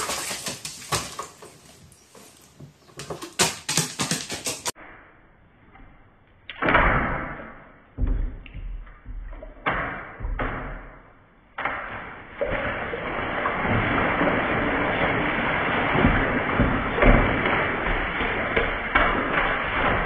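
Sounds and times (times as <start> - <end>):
bird splashing in water: 0.0 - 4.8.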